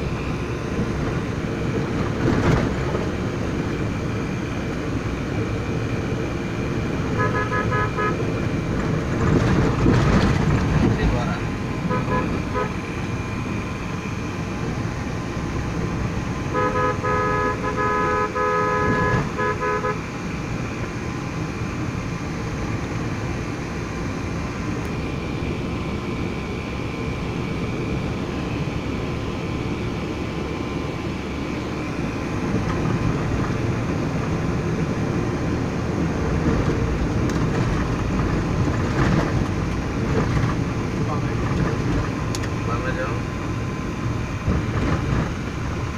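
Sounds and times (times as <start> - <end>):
vehicle engine and road noise: 0.0 - 45.9
vehicle horn short toots: 7.2 - 8.2, 11.9 - 12.8, 16.5 - 20.0.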